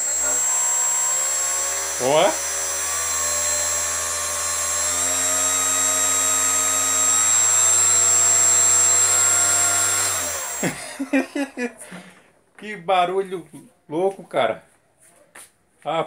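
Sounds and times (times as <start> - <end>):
electric ducted fan whining: 0.0 - 11.6.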